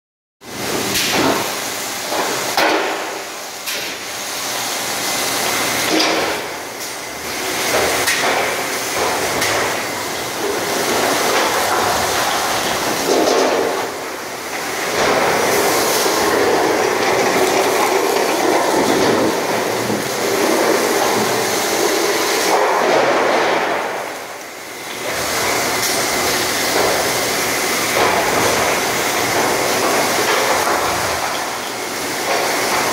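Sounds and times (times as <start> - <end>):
welding arc crackling hiss: 0.6 - 32.9.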